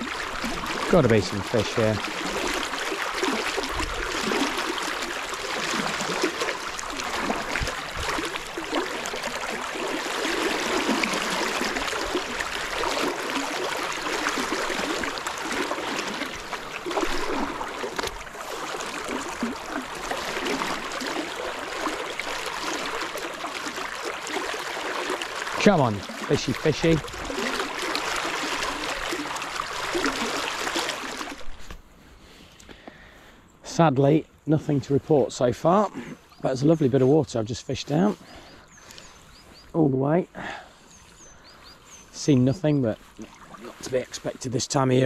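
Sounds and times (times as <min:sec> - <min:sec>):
river water rushing: 0:00.0 - 0:31.6.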